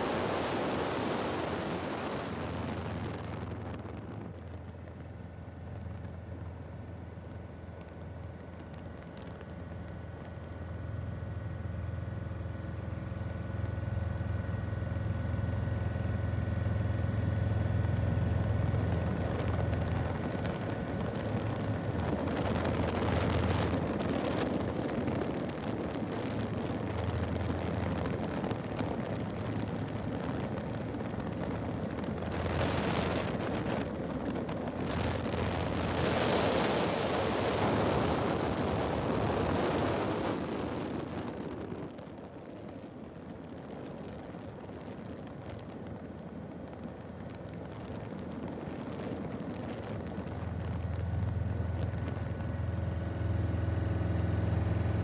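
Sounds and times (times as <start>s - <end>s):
wind noise rushing: 19.2s - 42.4s.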